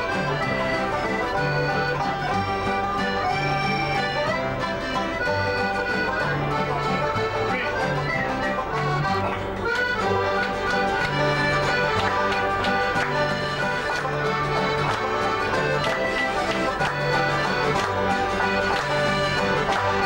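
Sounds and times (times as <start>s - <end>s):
accordion melody: 0.0s - 20.0s
strummed and plucked strings: 0.0s - 20.0s.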